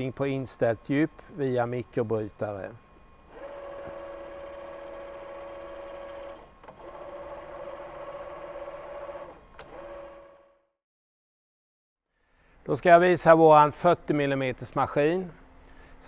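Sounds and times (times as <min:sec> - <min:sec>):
drilling machine motor whining: 0:03.2 - 0:10.5.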